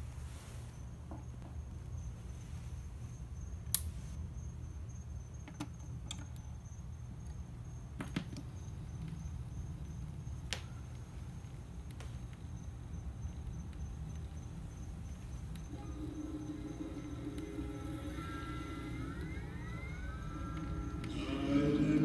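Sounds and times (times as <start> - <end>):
record player low hum: 1.4 - 22.0
vinyl clicks and pops: 8.0 - 21.4.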